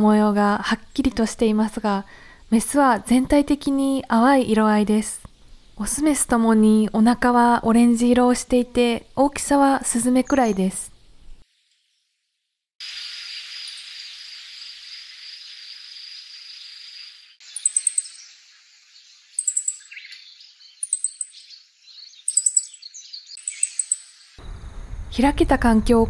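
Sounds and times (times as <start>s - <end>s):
bird call notes: 17.4s - 18.3s, 19.4s - 24.6s.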